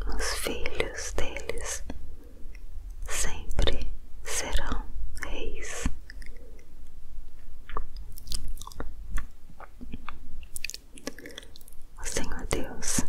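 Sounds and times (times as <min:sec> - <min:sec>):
low steady hum: 0:00.0 - 0:13.0
soft clicks and crackles: 0:05.2 - 0:13.0.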